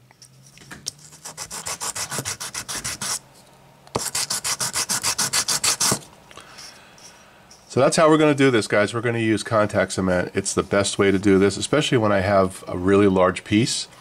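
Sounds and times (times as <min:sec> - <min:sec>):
hand sanding wood: 0:01.1 - 0:03.2, 0:04.0 - 0:06.0.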